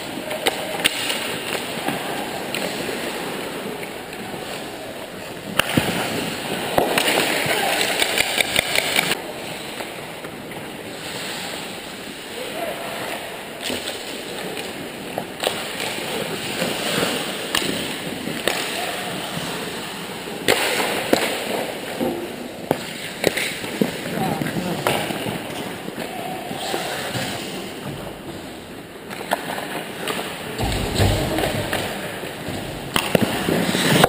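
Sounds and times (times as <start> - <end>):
hockey sticks and puck clacking: 0.0 - 34.0
players' voices: 0.0 - 34.0
skate blades scraping on ice: 13.6 - 34.0.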